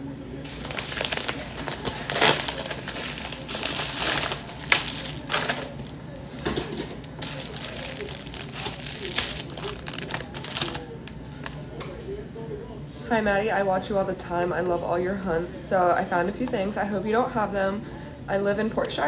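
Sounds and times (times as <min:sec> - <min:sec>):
packaging crinkling and rustling: 0:00.5 - 0:11.6
sharp packaging crackles: 0:00.5 - 0:11.6.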